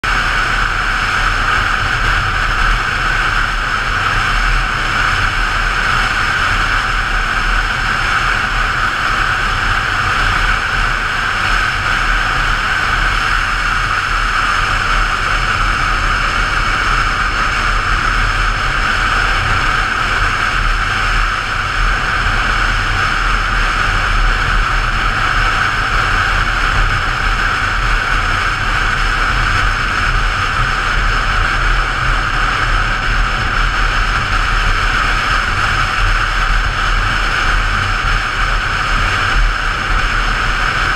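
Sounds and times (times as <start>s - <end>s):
low motorcycle engine rumble: 0.0s - 40.9s
wind rush over helmet: 0.0s - 40.9s.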